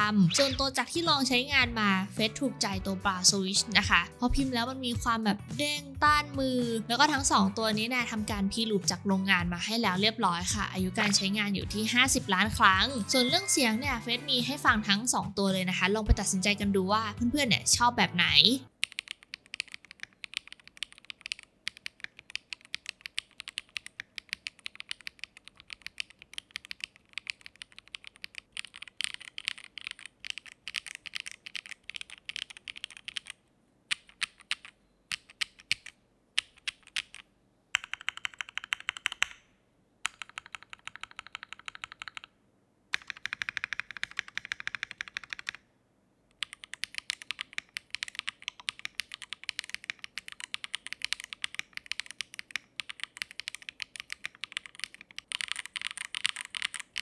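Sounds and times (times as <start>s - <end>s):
mechanical keyboard typing: 18.7s - 39.4s, 40.0s - 45.6s, 46.3s - 57.0s.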